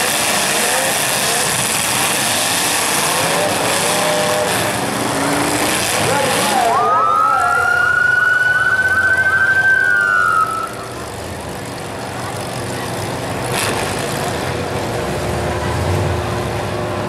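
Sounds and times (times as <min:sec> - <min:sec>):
car engines running: 0:00.0 - 0:17.0
siren long rising tone: 0:06.5 - 0:10.9.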